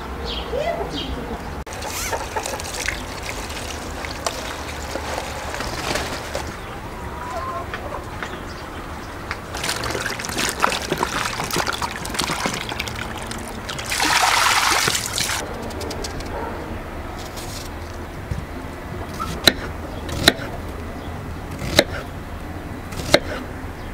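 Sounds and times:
running tap water splashing: 1.7 - 5.7, 9.5 - 15.4
vegetables knocking in water: 1.9 - 6.6, 9.5 - 15.4.

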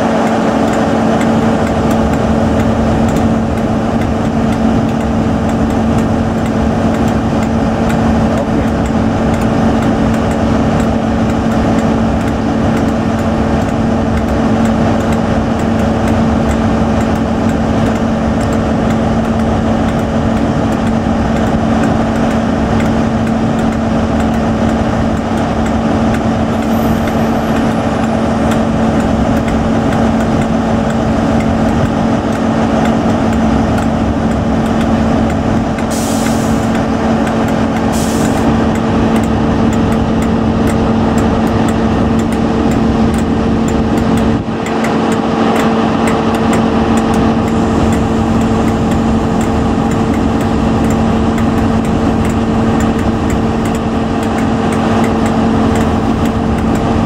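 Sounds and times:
diesel engine droning: 0.0 - 57.0
air hissing: 35.8 - 36.9, 37.8 - 38.6.

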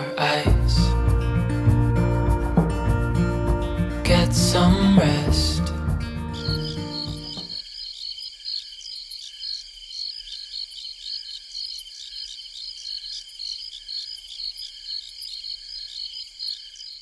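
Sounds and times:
soft low repeating note: 0.5 - 7.4
insects trilling: 5.9 - 17.0.

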